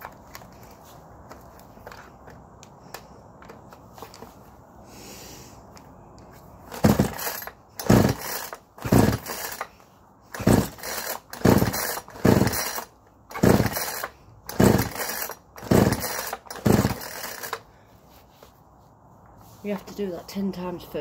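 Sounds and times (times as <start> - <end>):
chainsaw starter cord pulls: 6.7 - 17.7.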